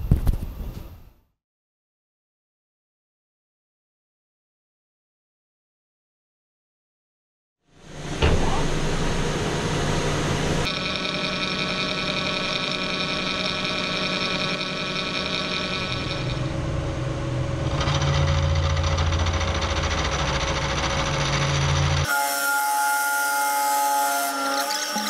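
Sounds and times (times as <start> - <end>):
metal lathe cutting whine: 8.7 - 25.0.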